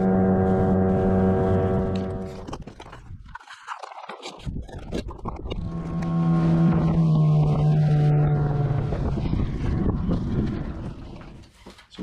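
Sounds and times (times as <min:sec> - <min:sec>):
outboard motor running: 0:00.0 - 0:02.6, 0:05.2 - 0:11.4.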